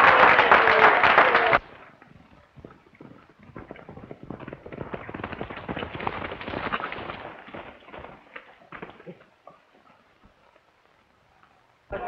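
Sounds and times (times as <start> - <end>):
horse hoofbeats galloping: 1.6 - 10.6.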